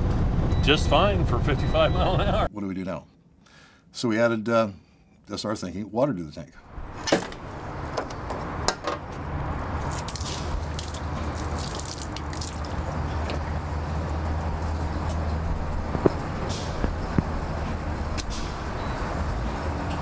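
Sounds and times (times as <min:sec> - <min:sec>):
water hissing from a hose: 0:09.8 - 0:12.9.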